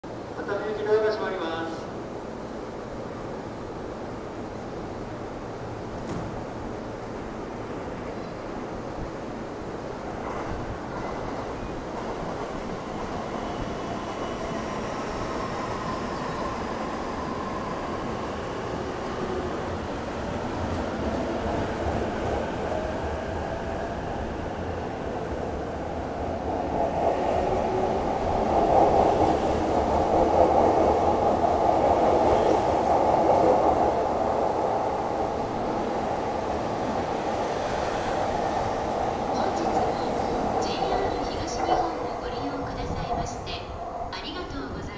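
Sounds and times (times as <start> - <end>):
train wheels rumbling: 9.8 - 44.9.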